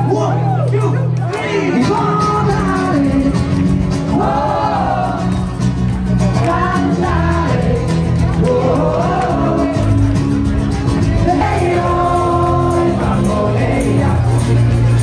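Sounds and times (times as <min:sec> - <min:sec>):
acoustic guitar: 0:00.0 - 0:15.0
bass guitar: 0:00.0 - 0:15.0
crowd clapping along: 0:00.4 - 0:15.0
man singing: 0:01.3 - 0:05.2, 0:06.3 - 0:10.3, 0:10.9 - 0:15.0.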